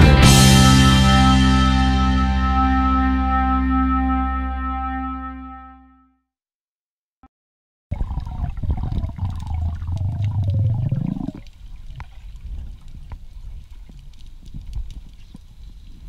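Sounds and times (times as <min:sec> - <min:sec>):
underwater rushing rumble: 0:07.9 - 0:13.7
water hiss with small clicks: 0:08.0 - 0:16.0.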